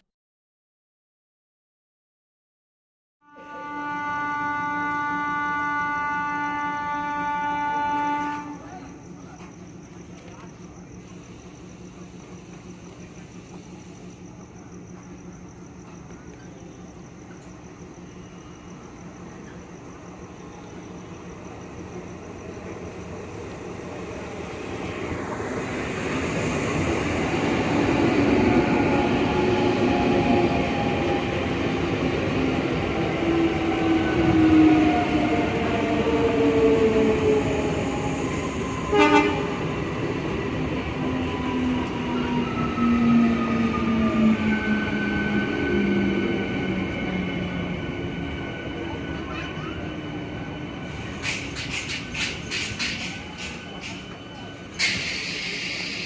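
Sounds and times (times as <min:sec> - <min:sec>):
train horn toot: 0:03.2 - 0:08.9, 0:38.8 - 0:39.6
train wheels rumbling on rails: 0:03.4 - 0:56.0.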